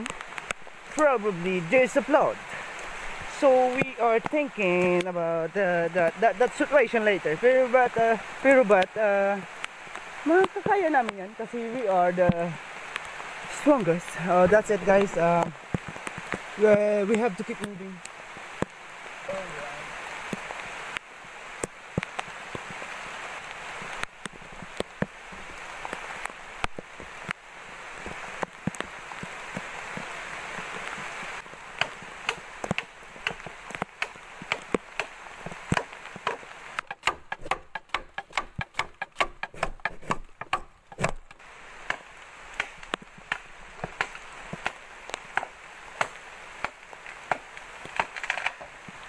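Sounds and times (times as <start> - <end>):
rain hiss: 0.0 - 49.0
chopping bamboo: 28.4 - 48.8
scattered knocks: 35.7 - 42.0.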